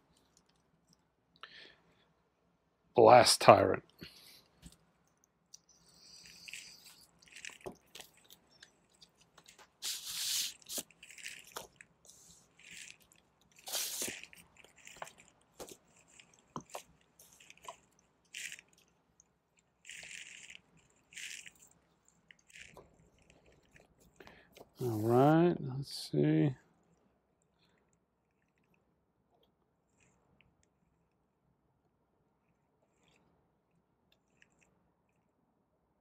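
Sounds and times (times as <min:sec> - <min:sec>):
plastic shrink wrap crinkling: 0:05.6 - 0:25.1
paper sleeves sliding out: 0:09.7 - 0:12.9, 0:13.6 - 0:15.2, 0:24.8 - 0:25.3.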